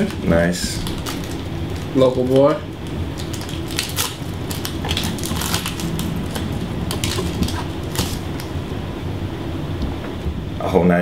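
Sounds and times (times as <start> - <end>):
foil wrappers crinkling: 0.0 - 8.6
steady low hum: 0.0 - 11.0.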